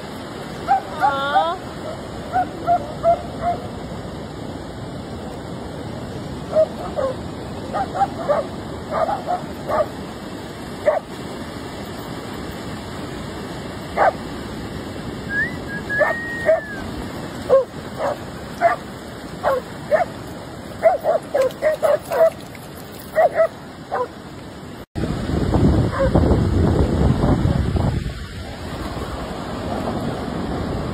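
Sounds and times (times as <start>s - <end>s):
surf hissing: 0.0s - 22.5s
wind: 0.0s - 30.9s
dogs barking and yipping: 0.6s - 3.7s, 6.5s - 10.0s, 10.8s - 11.1s, 14.0s - 14.2s, 15.8s - 24.2s, 25.9s - 26.2s.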